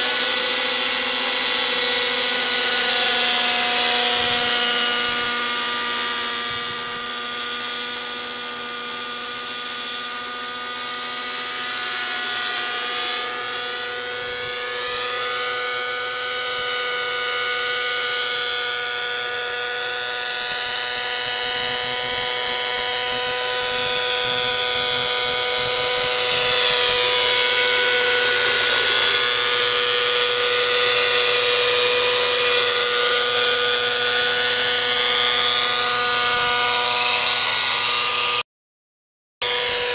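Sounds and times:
model helicopter engine whine: 0.0s - 38.4s, 39.4s - 39.9s.

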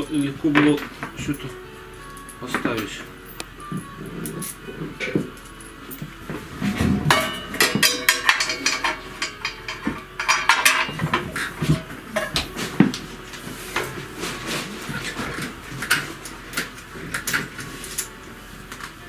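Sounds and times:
metal handlebar clanking: 6.0s - 12.8s.

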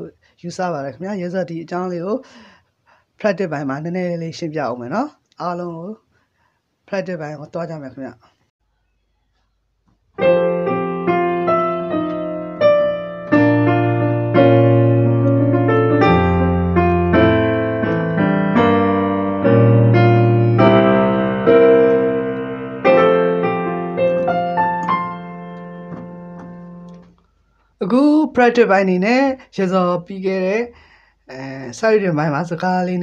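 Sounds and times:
digital piano playing: 10.2s - 27.1s.

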